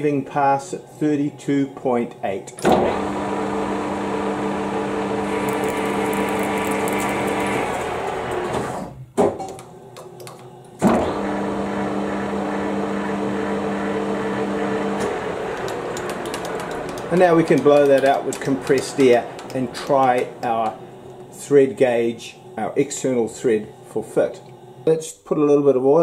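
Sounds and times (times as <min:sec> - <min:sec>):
lathe motor humming: 0:02.8 - 0:08.8, 0:11.2 - 0:24.9.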